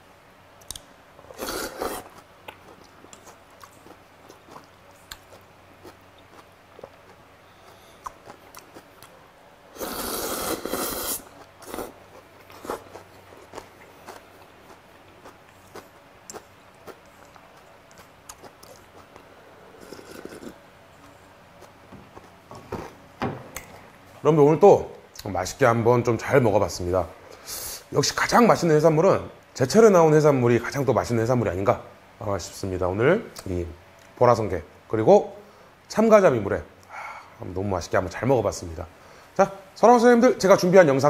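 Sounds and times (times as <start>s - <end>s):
loud slurping from a bowl: 1.4s - 2.1s, 9.8s - 11.9s, 19.8s - 20.6s
person chewing and crunching: 1.4s - 9.2s, 9.9s - 22.4s.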